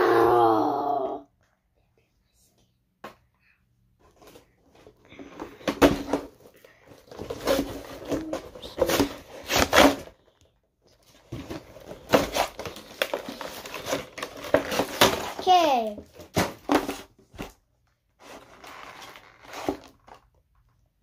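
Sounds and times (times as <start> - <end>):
packaging rustling and scraping: 4.0 - 17.6, 18.2 - 20.7.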